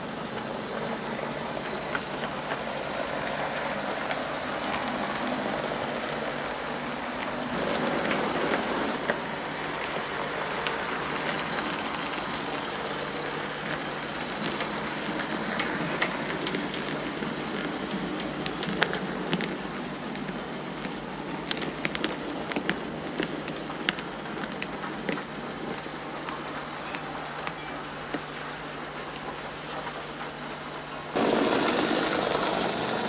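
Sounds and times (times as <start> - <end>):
model train motor rumbling: 0.0 - 33.0
sharp clicks of rolling stock: 7.2 - 33.0.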